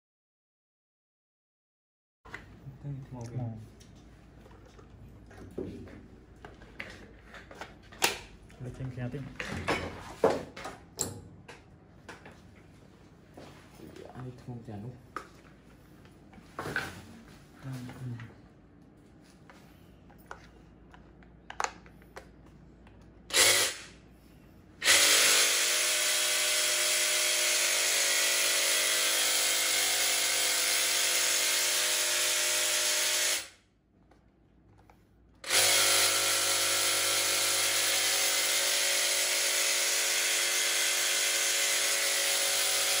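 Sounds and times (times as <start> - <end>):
hedge trimmer running: 35.4 - 43.0.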